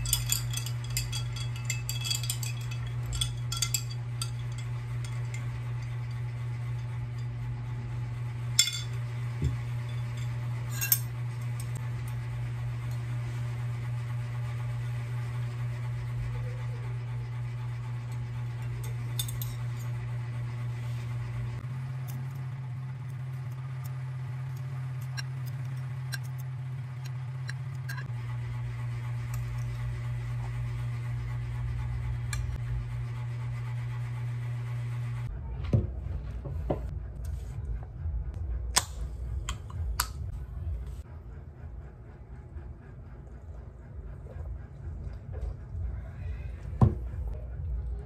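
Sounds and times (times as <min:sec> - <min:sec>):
cutlery clinking on ceramic bowl: 0:00.0 - 0:06.1
low hum: 0:00.0 - 0:48.0.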